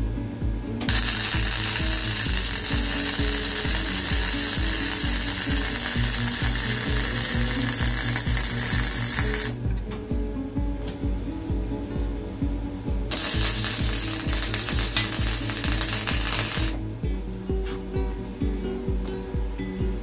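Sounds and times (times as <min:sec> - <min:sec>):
background music with beat: 0:00.0 - 0:20.0
welding arc crackling: 0:00.9 - 0:09.6, 0:13.1 - 0:16.8.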